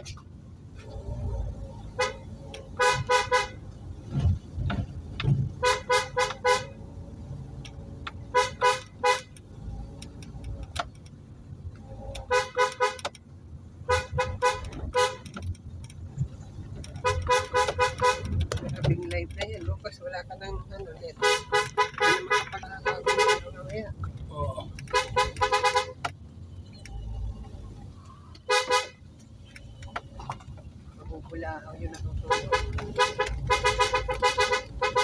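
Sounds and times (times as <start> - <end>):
car engine and tyres rumbling: 0.0 - 35.0
car horn beeping: 1.8 - 3.7, 5.5 - 6.8, 8.1 - 9.4, 12.0 - 13.2, 13.8 - 15.4, 16.9 - 19.0, 21.0 - 23.9, 24.8 - 27.2, 28.4 - 30.6, 31.9 - 35.0.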